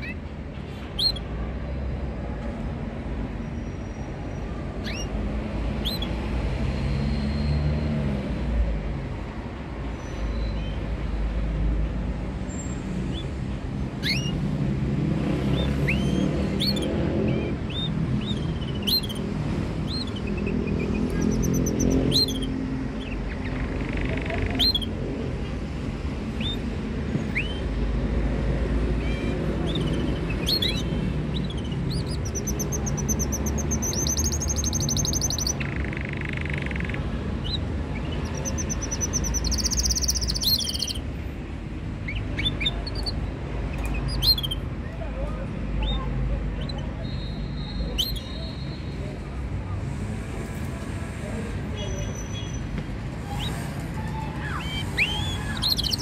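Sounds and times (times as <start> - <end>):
canaries chirping: 0.0 - 1.4, 3.0 - 7.9, 12.8 - 25.5, 26.2 - 41.2, 41.9 - 44.8, 45.7 - 49.3, 51.6 - 56.0.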